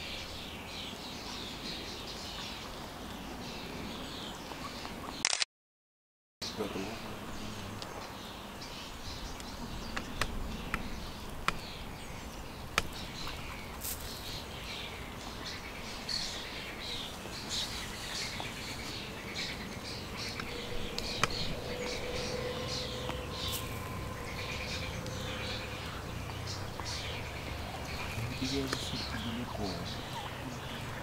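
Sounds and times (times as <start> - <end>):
sharp clicks: 5.2 - 5.5
cygnets peeping: 6.4 - 31.0.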